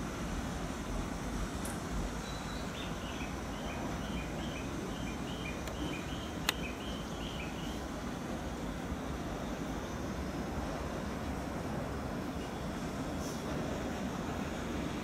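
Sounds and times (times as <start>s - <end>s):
bird chirping: 2.2s - 7.8s.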